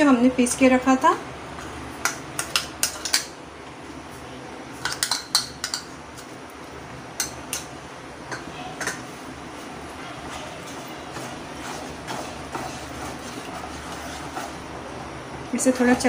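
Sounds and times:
utensils clinking against bowl: 0:04.8 - 0:06.3.

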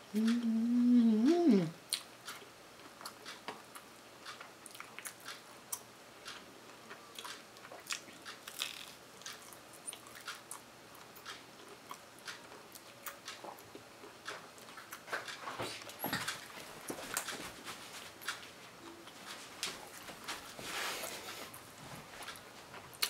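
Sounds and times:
person humming: 0:00.0 - 0:01.8
soft chewing: 0:00.1 - 0:23.0.

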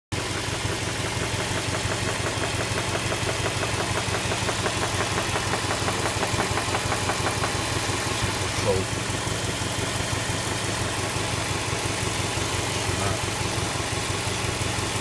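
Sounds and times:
engine running steadily: 0:00.2 - 0:15.0
rapid engine knock ticking: 0:00.2 - 0:15.0.

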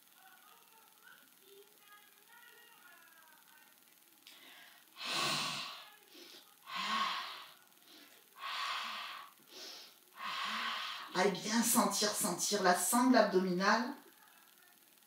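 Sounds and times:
woman breathing deeply: 0:04.3 - 0:11.2.

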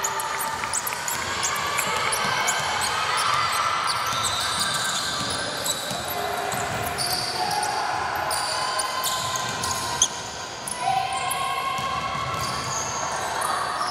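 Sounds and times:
sneakers squeaking on floor: 0:00.4 - 0:13.9
basketball bouncing on court: 0:00.5 - 0:07.6, 0:09.0 - 0:10.1, 0:11.8 - 0:12.9.

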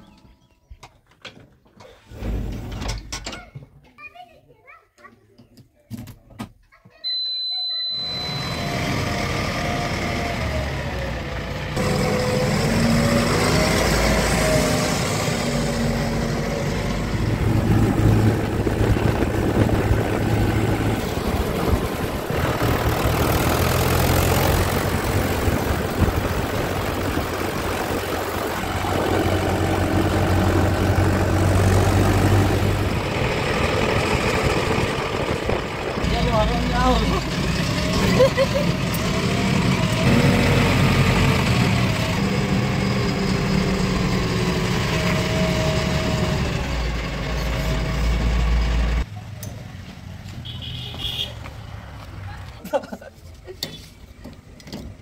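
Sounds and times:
tractor diesel engine starting: 0:01.8 - 0:03.4, 0:07.8 - 0:49.1
tractor engine running: 0:08.1 - 0:52.2.

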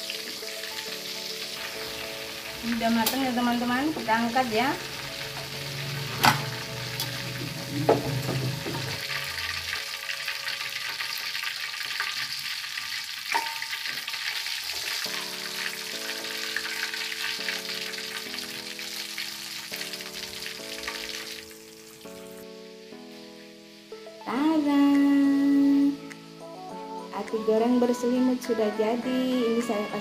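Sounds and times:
slow background music: 0:00.0 - 0:12.4, 0:13.6 - 0:30.0
food deep-frying in hot oil: 0:00.0 - 0:26.5
tongs clinking against wok: 0:13.3 - 0:14.5.

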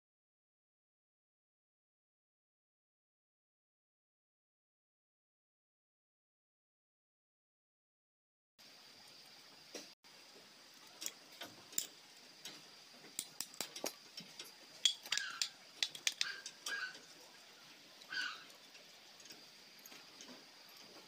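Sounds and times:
metal bolts clinking: 0:13.2 - 0:17.2.

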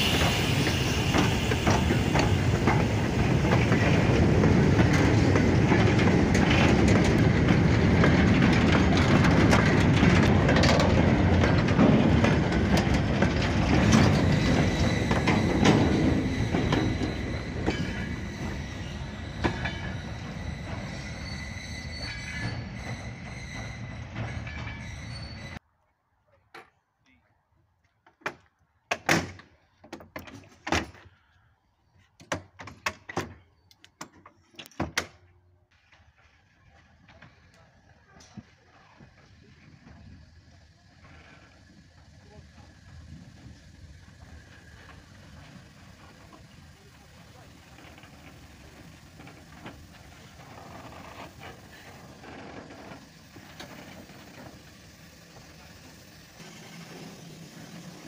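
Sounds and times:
steam hissing in puffs: 0:00.0 - 0:05.5, 0:39.1 - 0:58.0
steam locomotive moving slowly: 0:00.0 - 0:25.6, 0:29.6 - 0:58.0.

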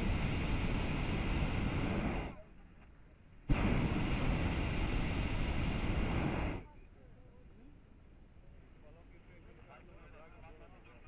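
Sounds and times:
propane burner blasts: 0:00.0 - 0:02.4, 0:03.4 - 0:06.8.

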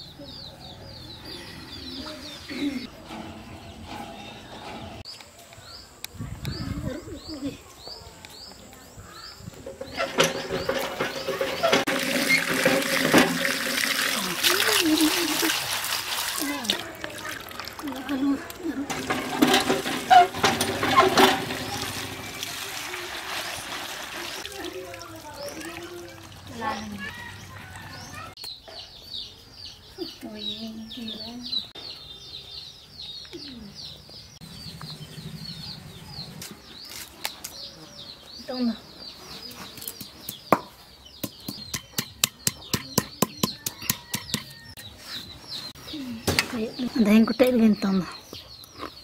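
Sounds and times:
water pouring and splashing: 0:10.0 - 0:27.8
birds chirping faintly: 0:16.3 - 0:49.0
stone pestle knocking on slab: 0:40.5 - 0:44.5.

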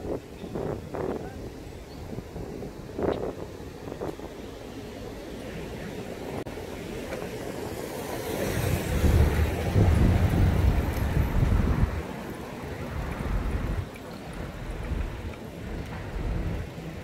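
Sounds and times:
wind rumble on microphone: 0:00.0 - 0:17.0
vehicle passing: 0:07.6 - 0:13.8.

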